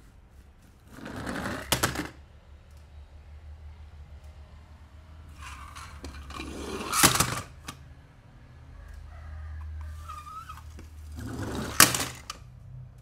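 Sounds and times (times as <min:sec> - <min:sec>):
toy cars rustling on artificial grass: 0:00.0 - 0:02.1, 0:05.3 - 0:07.8, 0:09.8 - 0:12.4
toy cars clattering into plastic bin: 0:00.9 - 0:02.2, 0:05.4 - 0:07.8, 0:10.7 - 0:12.4.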